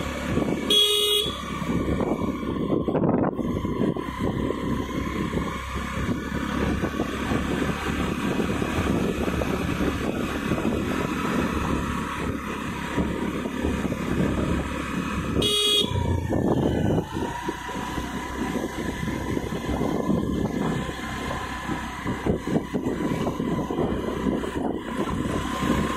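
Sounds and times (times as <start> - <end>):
motorcycle engine and road noise: 0.0 - 25.9
short horn beep: 0.7 - 1.5, 15.4 - 16.2.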